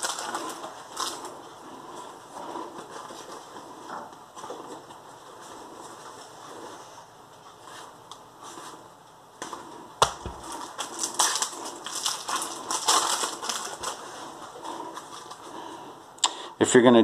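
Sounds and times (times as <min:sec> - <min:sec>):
foil wrappers crinkling: 0:00.0 - 0:03.7, 0:09.4 - 0:15.9.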